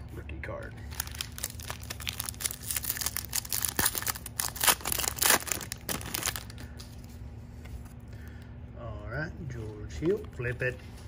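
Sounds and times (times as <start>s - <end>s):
foil wrapper crinkling and tearing: 0.9s - 6.6s.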